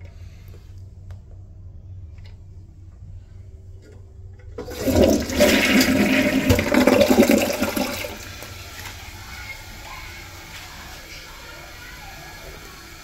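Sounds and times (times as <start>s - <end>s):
water running: 3.8s - 13.0s
toilet flushing: 4.4s - 13.0s.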